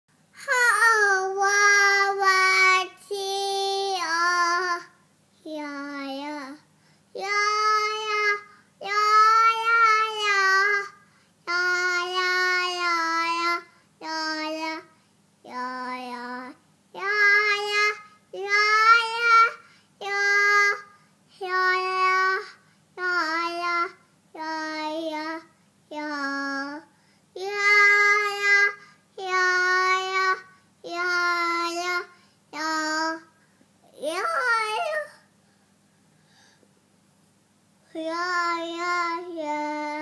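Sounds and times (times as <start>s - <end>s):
toddler singing long notes: 0.4s - 4.9s, 5.5s - 6.6s, 7.2s - 14.8s, 15.5s - 20.8s, 21.4s - 33.3s, 37.9s - 40.0s
toddler breathing: 35.5s - 36.7s.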